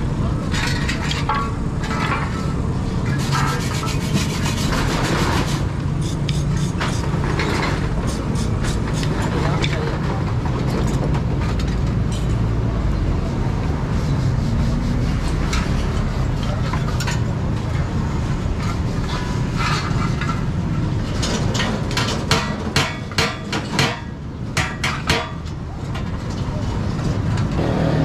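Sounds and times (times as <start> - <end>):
low rumble of vehicles: 0.0 - 28.0.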